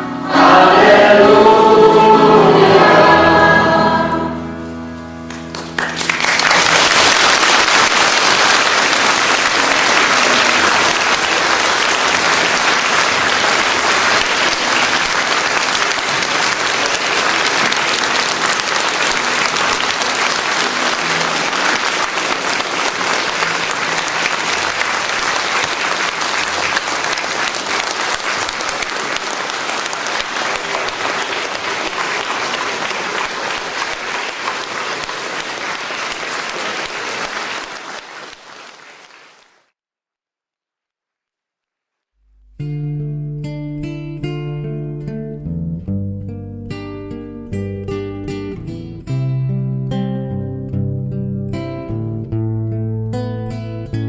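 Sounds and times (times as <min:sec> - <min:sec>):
audience applause: 0:05.3 - 0:39.7.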